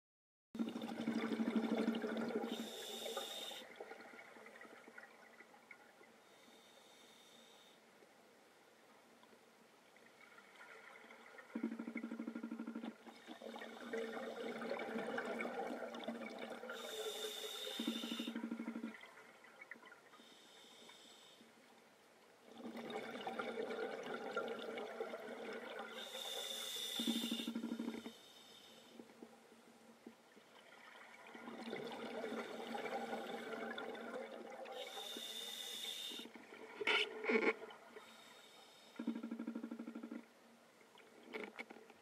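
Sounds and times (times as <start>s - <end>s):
underwater bubbling exhaust: 0.6s - 5.9s, 10.2s - 20.3s, 22.5s - 28.2s, 30.5s - 40.2s
regulator hiss: 2.5s - 3.7s, 16.8s - 18.3s, 26.0s - 27.6s, 34.8s - 36.3s.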